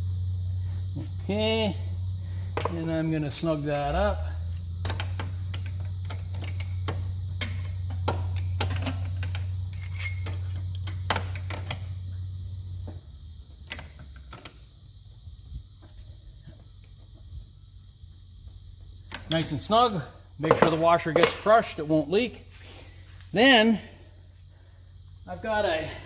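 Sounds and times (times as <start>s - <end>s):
low hum: 0.0s - 19.3s.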